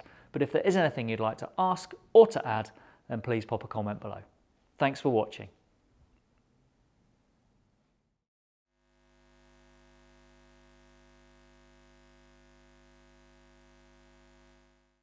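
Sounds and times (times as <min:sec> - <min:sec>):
faint electronic hum: 0:08.8 - 0:15.0.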